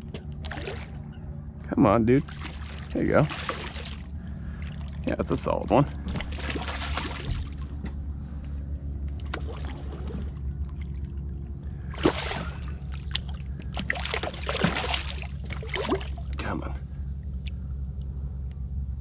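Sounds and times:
steady low hum: 0.0 - 19.0
fish thrashing and splashing: 0.3 - 1.0, 2.2 - 5.0, 6.0 - 7.8, 9.1 - 16.4.

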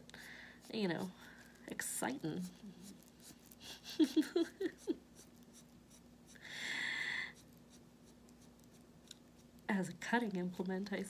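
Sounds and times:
marker pen scratching: 0.6 - 3.7, 4.7 - 6.1, 7.4 - 9.7.

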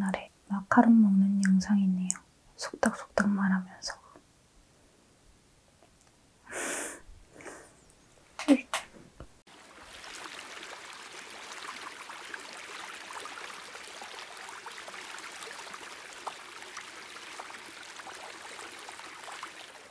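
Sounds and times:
steady crackling hiss: 0.0 - 12.6.

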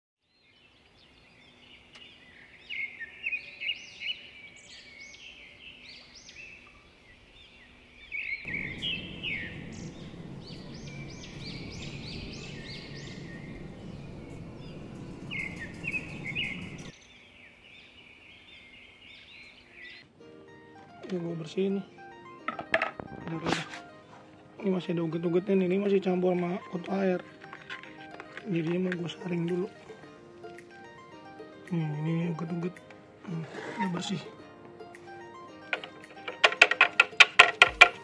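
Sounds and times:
small birds chirping: 0.2 - 20.1
low rushing noise: 8.5 - 16.9.

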